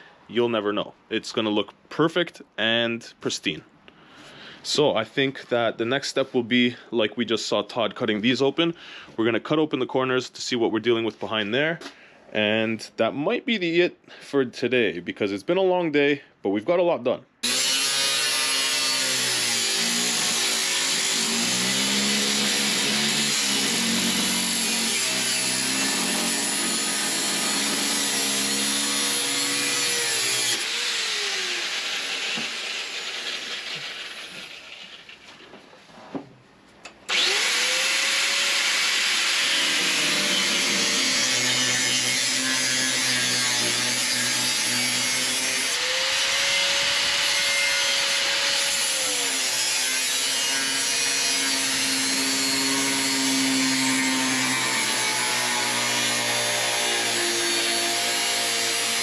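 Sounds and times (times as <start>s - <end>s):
angle grinder cutting sheet metal: 17.4s - 35.1s, 37.1s - 59.0s.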